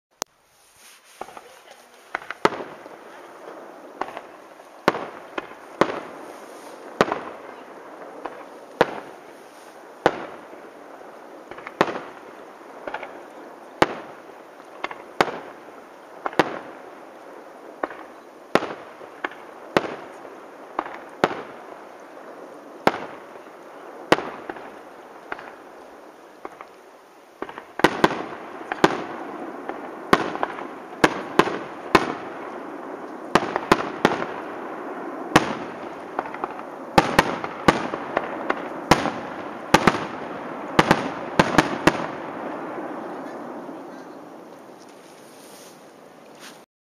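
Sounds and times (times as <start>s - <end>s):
fireworks crackle: 0.2s - 46.7s
fireworks shells bursting: 0.8s - 10.6s.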